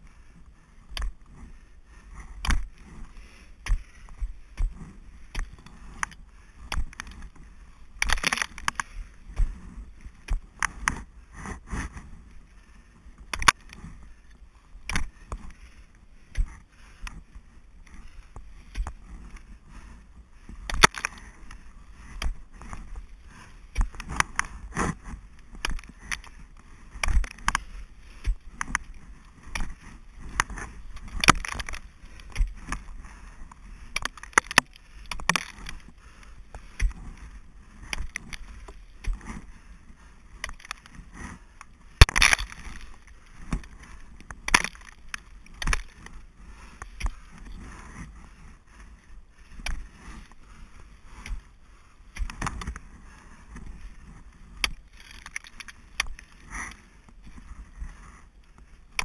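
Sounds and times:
ice axe striking ice: 0:08.0 - 0:08.8, 0:30.3 - 0:32.8, 0:42.0 - 0:43.7.

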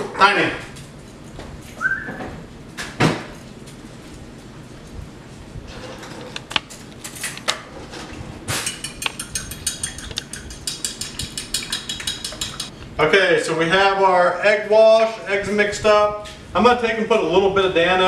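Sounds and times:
eggs cracking on bowl rim: 0:08.6 - 0:12.7
whisk clicking against bowl: 0:08.6 - 0:12.7.

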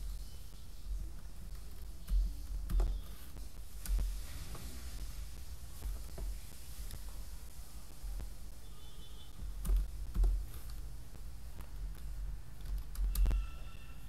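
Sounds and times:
low background hum: 0:00.0 - 0:14.0
keyboard keystrokes: 0:01.4 - 0:04.0, 0:09.5 - 0:10.8, 0:11.6 - 0:13.5.

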